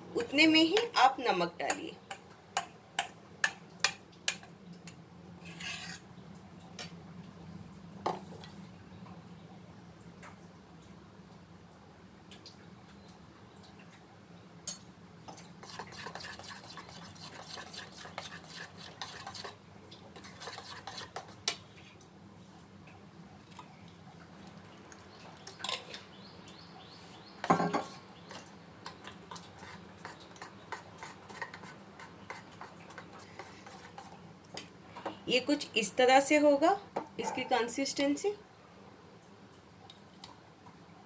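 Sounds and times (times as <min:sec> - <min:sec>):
spoon stirring batter in bowl: 0:00.2 - 0:06.1, 0:15.3 - 0:22.0, 0:27.5 - 0:34.7.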